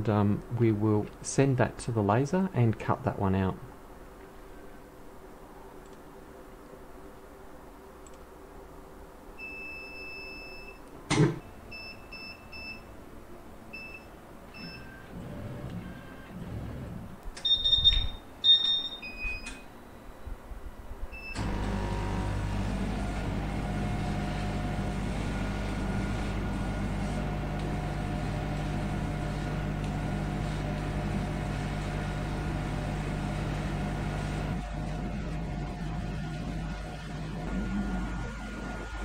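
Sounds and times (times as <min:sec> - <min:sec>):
electronic beeps: 0:17.4 - 0:20.2
laser cutter humming: 0:21.4 - 0:39.0.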